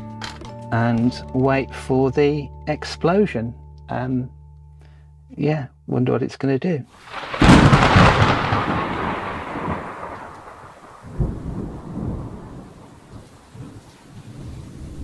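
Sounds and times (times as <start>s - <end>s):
explosion with rolling rumble: 7.1s - 13.8s.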